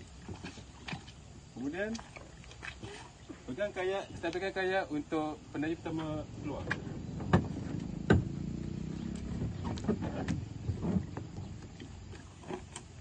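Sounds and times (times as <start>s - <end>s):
kayak knocking against concrete: 5.9s - 8.4s.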